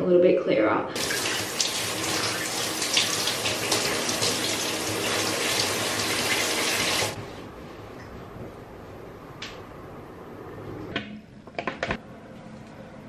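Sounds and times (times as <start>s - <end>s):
shower water rushing: 1.0s - 7.2s.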